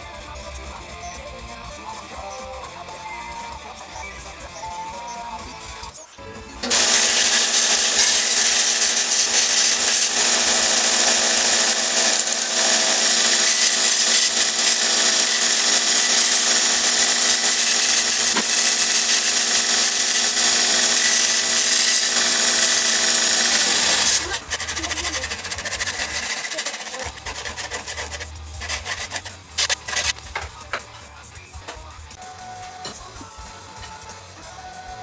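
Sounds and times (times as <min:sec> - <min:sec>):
belt grinder running: 0:06.6 - 0:30.6
wood sanding on belt: 0:06.6 - 0:35.0.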